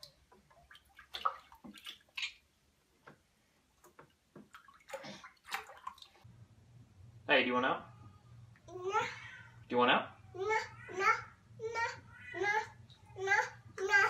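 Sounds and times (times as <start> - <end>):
baby splashing bathwater: 0.0 - 2.9, 3.8 - 6.3.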